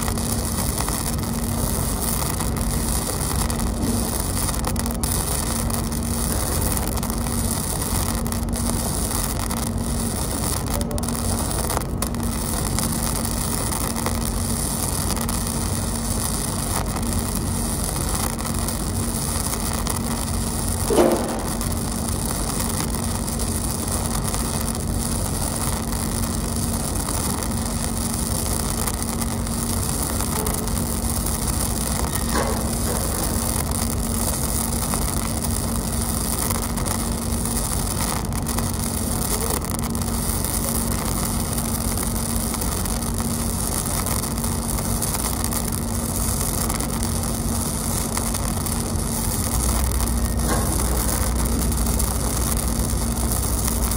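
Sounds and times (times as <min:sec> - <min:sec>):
steady low hum: 0:00.0 - 0:53.9
welding arc crackling: 0:00.0 - 0:53.9
welding arc pop: 0:00.0 - 0:53.9.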